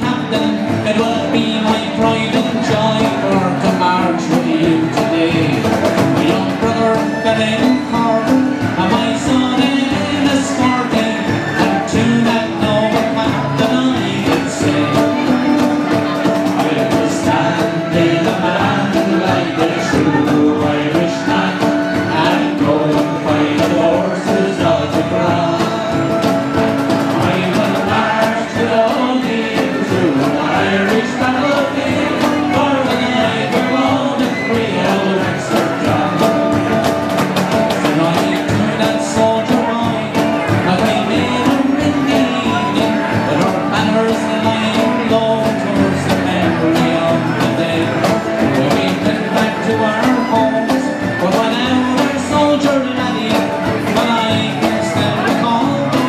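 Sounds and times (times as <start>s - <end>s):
banjo: 0.0s - 56.0s
harmonica: 0.0s - 56.0s
strummed acoustic guitars: 0.0s - 56.0s
voices singing: 0.0s - 56.0s.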